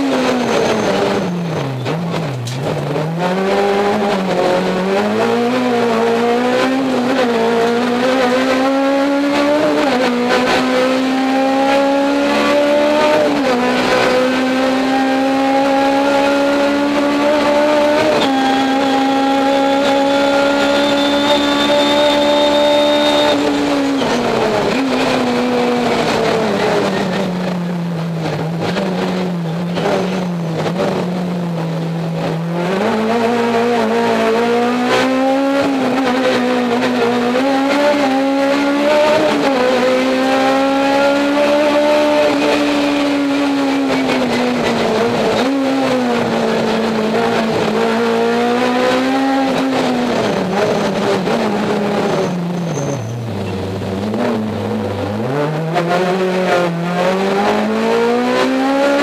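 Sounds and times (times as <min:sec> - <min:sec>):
race car engine accelerating: 0:00.0 - 0:59.0.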